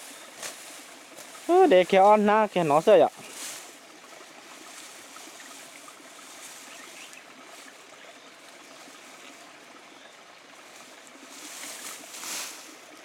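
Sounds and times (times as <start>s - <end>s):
flowing water: 0.0s - 13.0s.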